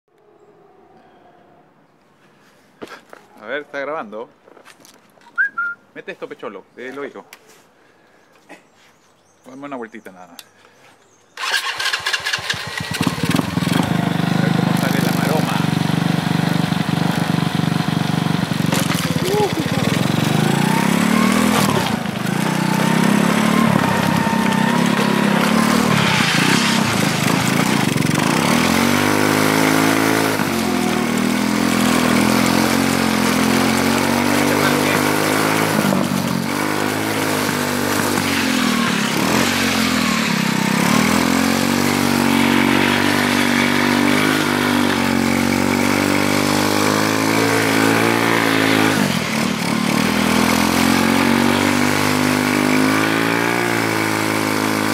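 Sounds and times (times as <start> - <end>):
go-kart engine revving: 11.4 - 54.9.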